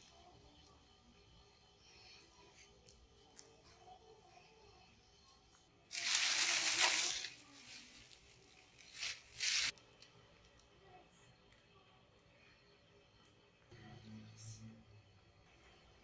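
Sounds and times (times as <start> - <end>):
plastic sheeting crinkling: 5.9 - 9.7.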